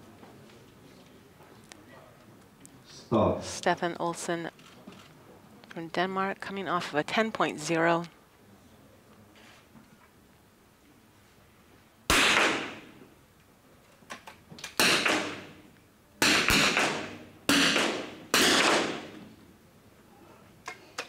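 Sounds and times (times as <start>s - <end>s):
rifle shots with echo: 12.1s - 13.0s, 14.8s - 15.6s, 16.2s - 19.3s.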